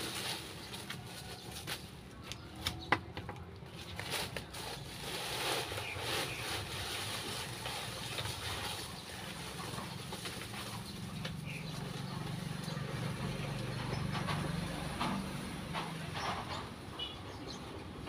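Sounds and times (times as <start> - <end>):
dry leaves rustling: 0.0 - 13.8.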